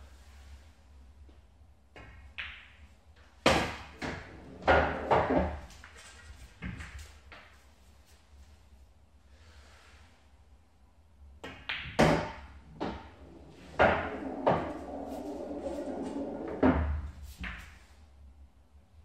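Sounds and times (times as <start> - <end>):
pool balls clacking: 3.5 - 7.0, 11.4 - 17.8
ball rolling through return channel: 4.0 - 7.0, 12.6 - 17.7
cue striking ball: 11.5 - 17.6.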